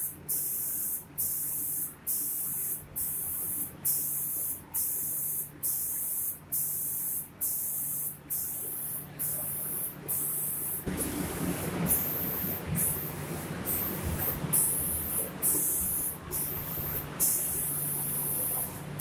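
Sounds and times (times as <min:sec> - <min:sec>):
air spray gun hissing in bursts: 0:00.0 - 0:19.0
low machine hum: 0:08.6 - 0:19.0
loud rough machine noise: 0:10.9 - 0:14.5.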